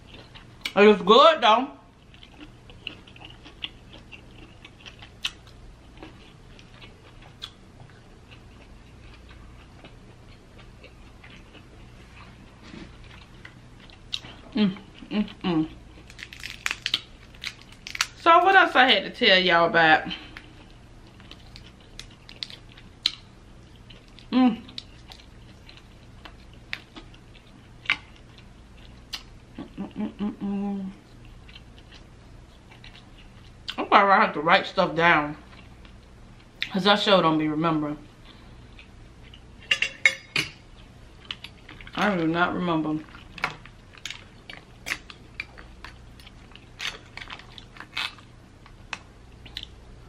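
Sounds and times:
chewing: 0.0s - 0.8s, 2.0s - 18.1s, 20.2s - 29.9s, 31.1s - 33.8s, 43.0s - 49.8s
woman humming while eating: 14.4s - 15.8s, 24.3s - 24.8s, 29.6s - 31.1s
crab shell cracking: 16.0s - 18.2s.

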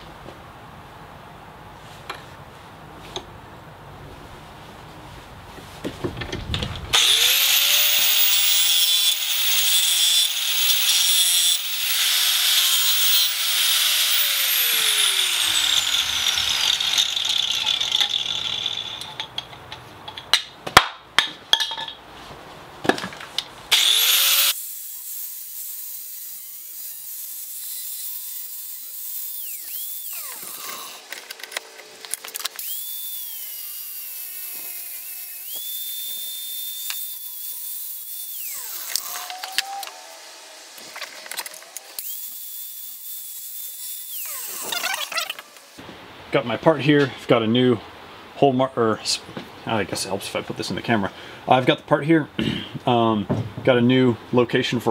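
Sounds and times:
angle grinder cutting steel: 6.9s - 19.5s, 23.7s - 45.8s.

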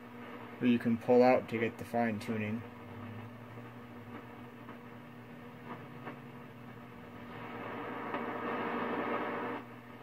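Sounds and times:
radio hum and static: 0.0s - 10.0s.

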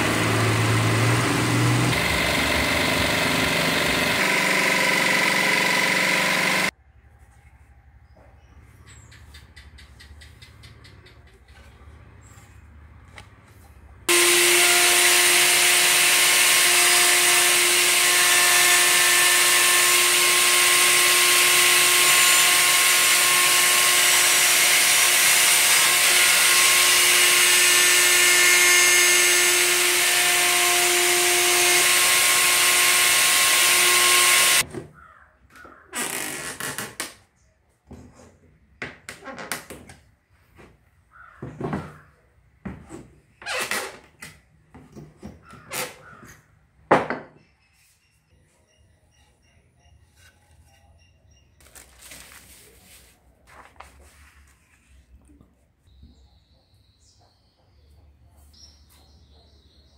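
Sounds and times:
router high whine: 0.0s - 6.7s, 14.1s - 34.6s.

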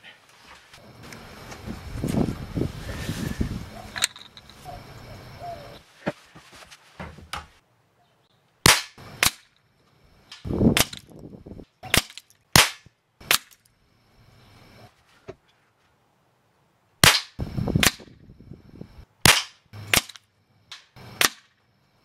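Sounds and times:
pellet rifle shots: 8.6s - 9.5s, 10.3s - 11.1s, 11.8s - 13.6s, 17.0s - 18.1s, 19.2s - 21.5s.

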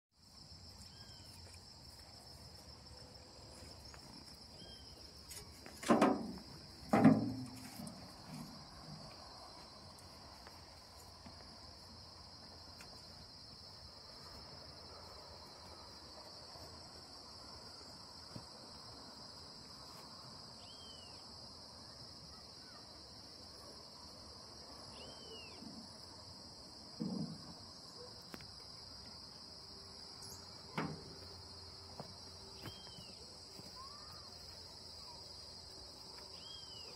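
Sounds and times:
insect chorus: 0.2s - 36.9s
loud thumps: 5.8s - 7.9s.

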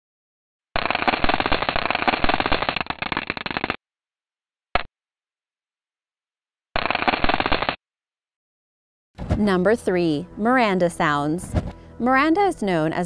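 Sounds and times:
rapid crackle of tiny impacts: 0.8s - 3.8s.

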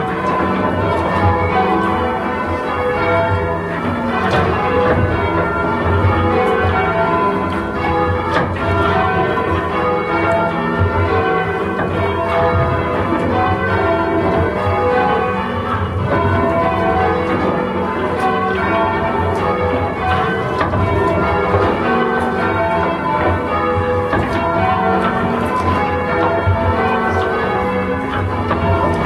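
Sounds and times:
church bells ringing: 0.0s - 29.0s.

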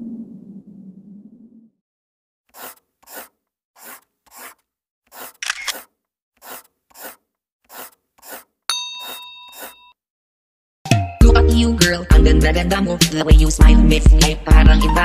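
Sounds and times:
bright ding: 8.7s - 9.9s.

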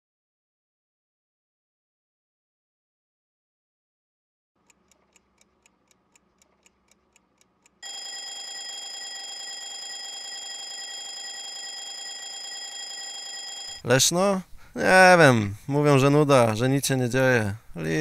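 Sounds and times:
faint clock ticking: 4.6s - 10.8s
alarm clock ringing: 7.8s - 13.8s.

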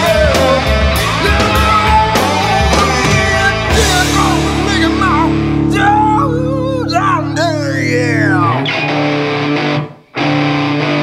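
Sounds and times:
rock music: 0.0s - 11.0s
drum beat: 1.0s - 5.6s.

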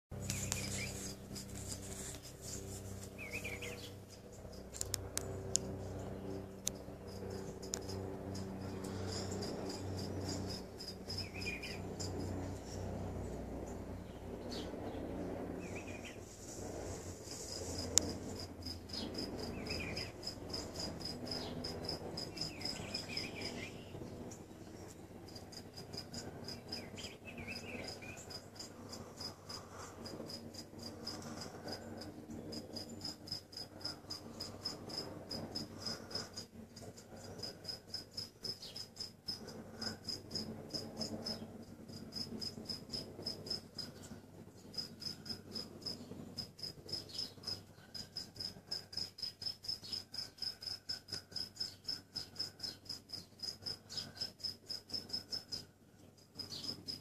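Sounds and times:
insect chirping: 7.1s - 12.4s, 25.3s - 41.1s, 44.7s - 57.0s.

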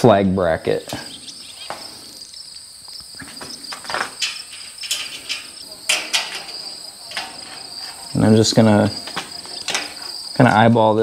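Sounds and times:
high-pitched insect trill: 0.8s - 11.0s
metal clinks and taps: 2.9s - 8.2s.

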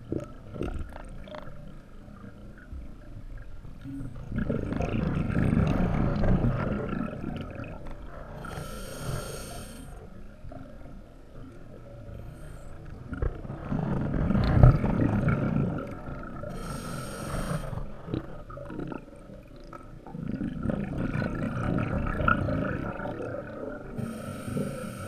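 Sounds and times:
regulator hissing inhalation: 16.5s - 17.8s, 24.0s - 25.0s.

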